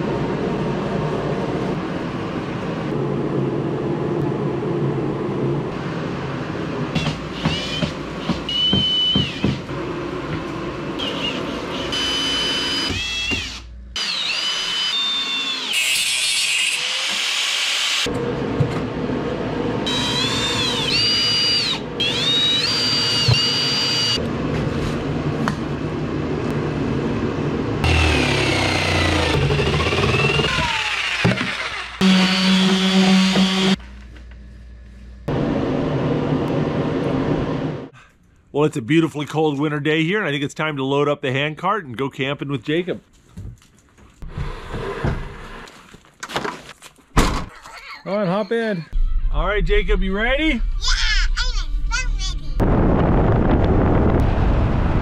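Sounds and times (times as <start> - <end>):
cordless drill driving screws: 27.9 - 33.7
steady low hum: 31.7 - 38.5.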